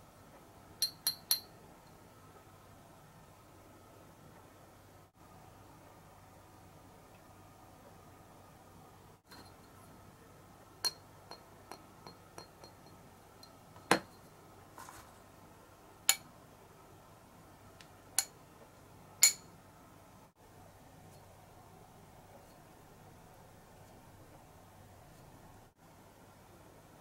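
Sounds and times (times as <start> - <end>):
light ticks of pipes: 0.3 - 2.0.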